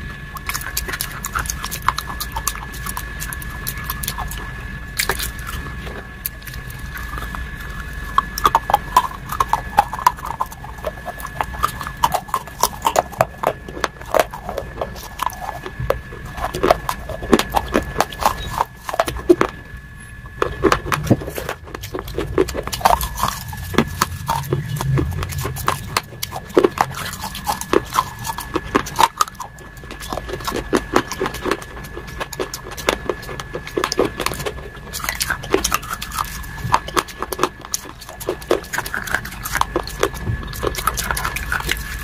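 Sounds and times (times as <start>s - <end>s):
chewing and wet mouth sounds: 0.0s - 42.0s
lip smacks: 20.4s - 42.0s.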